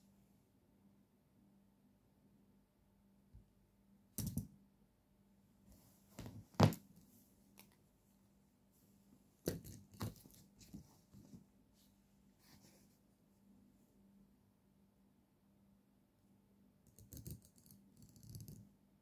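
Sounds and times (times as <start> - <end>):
pen clicking and tapping: 4.2 - 4.5, 9.5 - 10.4, 16.9 - 18.7.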